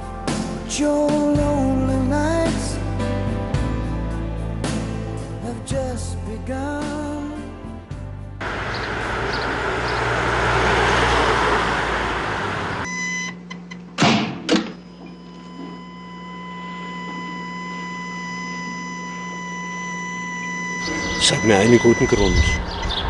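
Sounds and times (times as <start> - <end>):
car driving past: 8.4 - 12.9
high ringing tone: 12.8 - 13.5, 14.8 - 22.7
low hum: 14.9 - 23.0.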